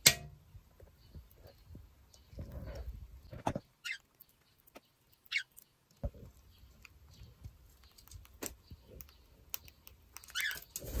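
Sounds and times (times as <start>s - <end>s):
bird beak tapping seeds: 3.6s - 10.9s.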